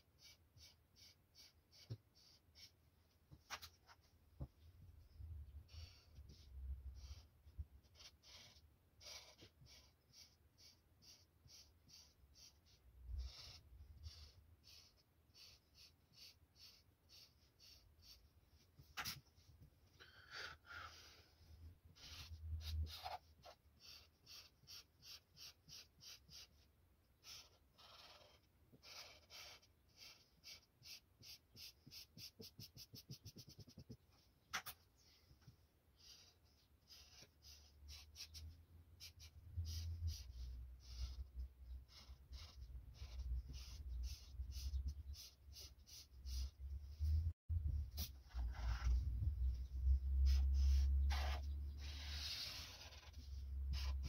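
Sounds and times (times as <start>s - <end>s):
marker scratching on paper: 0.0s - 4.1s, 5.6s - 35.4s, 36.0s - 47.2s, 47.9s - 54.0s.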